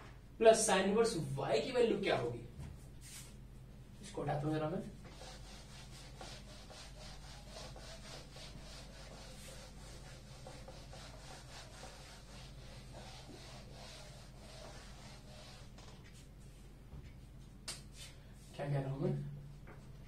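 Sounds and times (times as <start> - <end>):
eraser wiping whiteboard: 3.0 - 3.4, 5.0 - 16.6.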